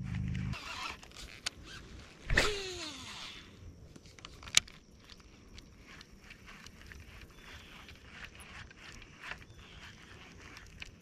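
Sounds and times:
spinning reel spool whine: 5.8 - 11.0.

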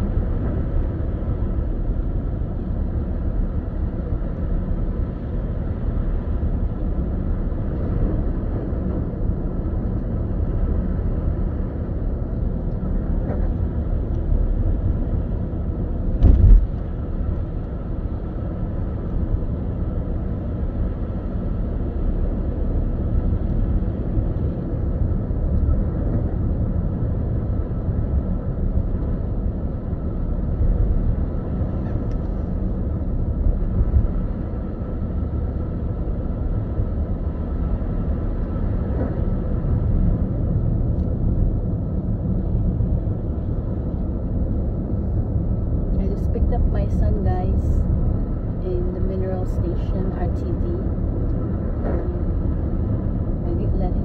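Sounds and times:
car cabin rumble: 2.8 - 21.1, 22.7 - 54.0
brief thump: 16.2 - 16.7.

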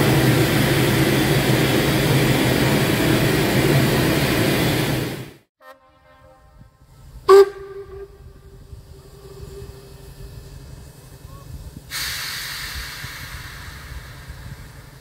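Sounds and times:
steam locomotive whistle: 5.6 - 10.6
steam hissing: 7.0 - 15.0
low rumble: 7.4 - 11.9.

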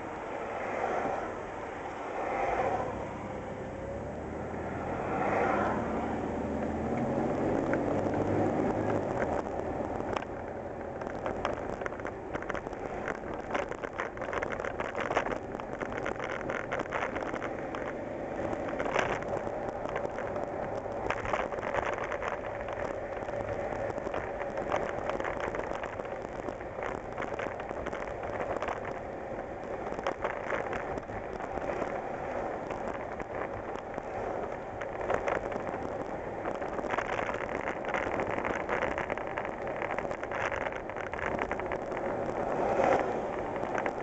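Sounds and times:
engine and road noise: 0.0 - 44.0
short clicks and crackles: 6.9 - 44.0.

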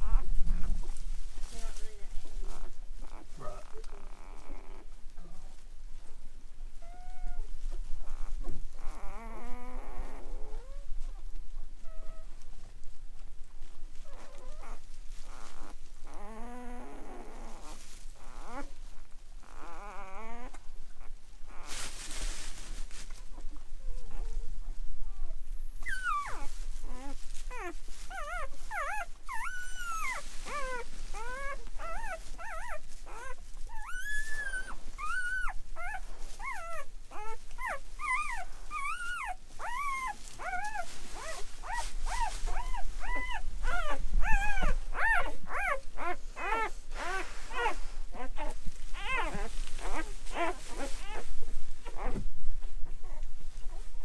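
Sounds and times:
puppy whimpering and squealing: 0.0 - 0.7, 2.5 - 4.9, 6.8 - 10.9, 14.0 - 21.8, 25.1 - 52.2, 52.8 - 53.9.

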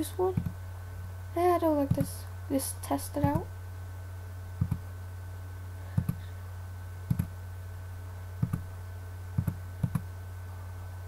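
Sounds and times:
low electrical hum: 0.0 - 11.0
computer mouse clicking: 4.6 - 4.8, 6.0 - 6.2, 7.1 - 7.3, 8.4 - 8.6, 9.4 - 10.1.

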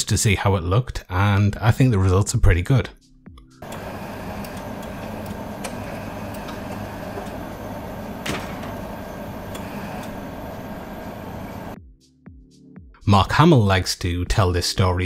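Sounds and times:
can dispensing clack: 3.6 - 11.4
vending machine hum: 3.6 - 11.8.

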